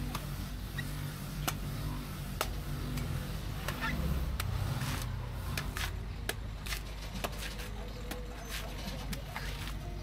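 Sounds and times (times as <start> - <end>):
low hum of street traffic: 0.0 - 10.0
knife chopping coconut husk: 2.4 - 9.8.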